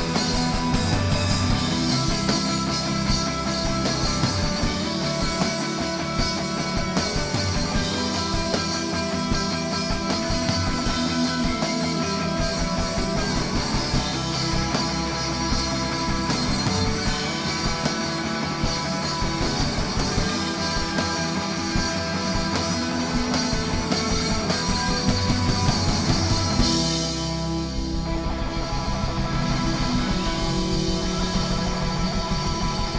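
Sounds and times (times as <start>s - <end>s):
live rock band playing: 0.0s - 32.9s.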